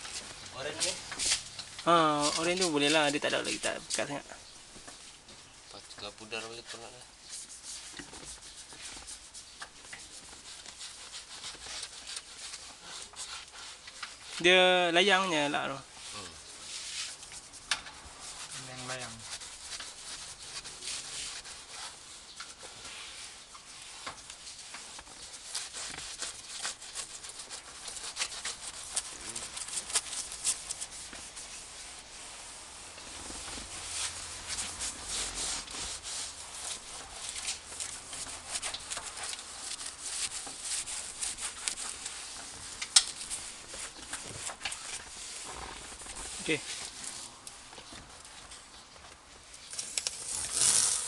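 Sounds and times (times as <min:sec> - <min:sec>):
cloth wiping leather seat: 0:16.0 - 0:47.3.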